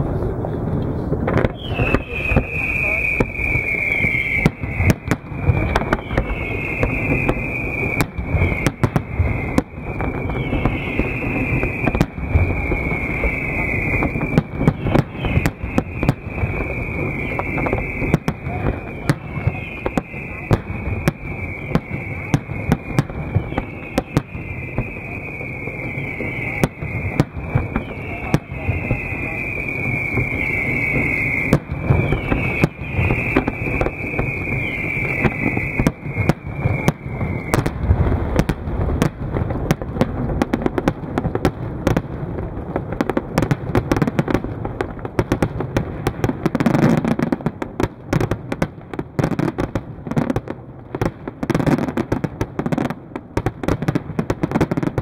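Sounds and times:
fireworks bangs and crackle: 0.0s - 55.0s
high falling whistle: 1.4s - 37.8s.

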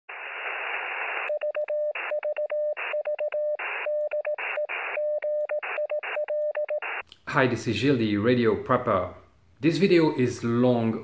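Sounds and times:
hissing radio static: 0.1s - 1.4s
morse code tone: 1.3s - 7.0s.

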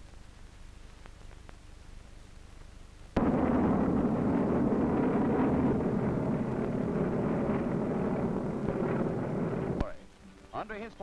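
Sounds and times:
faint hiss and hum: 0.0s - 11.0s
aircraft engines droning: 3.2s - 9.8s.

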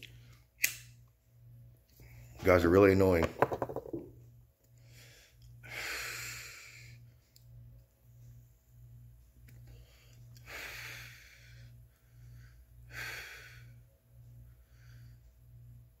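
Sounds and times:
man breathing while smoking: 9.6s - 13.9s.

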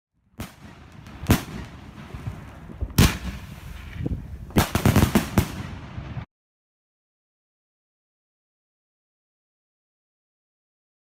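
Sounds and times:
fireworks bangs: 0.3s - 6.3s.

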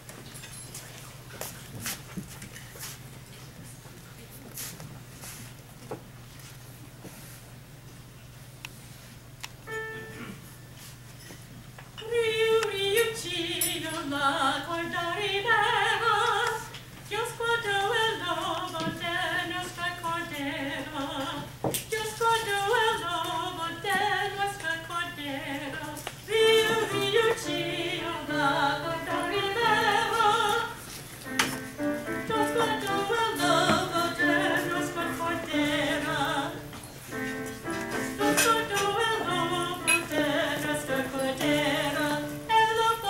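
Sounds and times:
woman singing: 12.0s - 30.9s, 31.7s - 36.8s, 38.1s - 43.0s.

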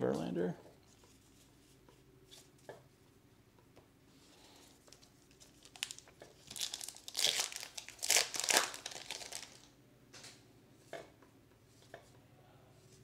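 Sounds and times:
wrapper tearing and crinkling: 4.9s - 9.7s.

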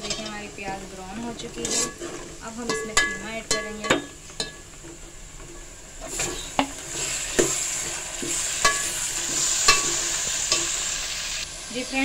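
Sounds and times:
meat sizzling in hot oil: 0.0s - 12.0s
metal spoon clinking against pot: 2.6s - 4.7s, 8.3s - 10.8s.

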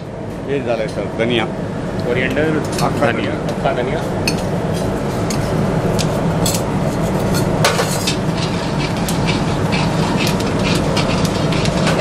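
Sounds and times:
low kitchen rumble: 0.0s - 12.0s
metal spatula scraping a pan: 4.3s - 12.0s
seeds frying in oil: 5.0s - 12.0s.

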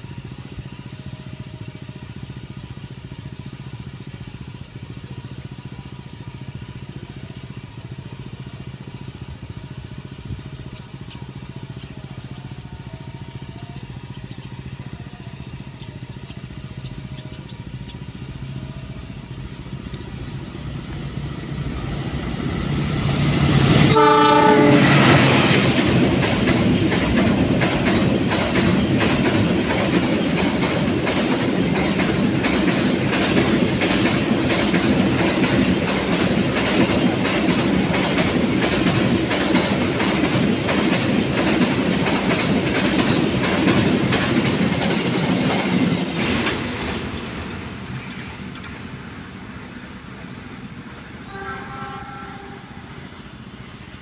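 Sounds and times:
freight train approaching: 0.0s - 54.0s
wheels clattering over rails: 19.2s - 49.8s
train horn blast: 23.6s - 25.7s, 51.2s - 53.1s.

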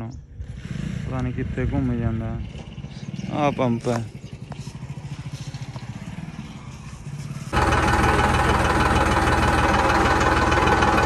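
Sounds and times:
diesel tractor engine idling: 2.8s - 11.0s.

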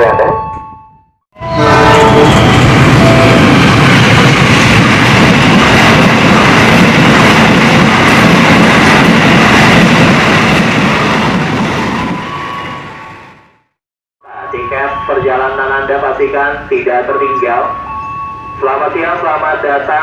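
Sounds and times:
train wheels clattering on rails: 2.3s - 12.1s.

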